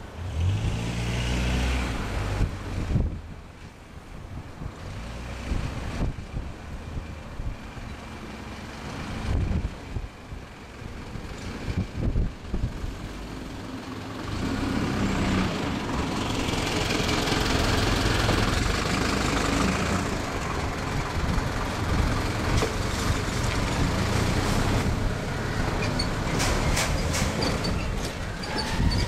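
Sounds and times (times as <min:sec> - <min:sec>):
diesel railcar engines running: 0:06.3 - 0:29.0.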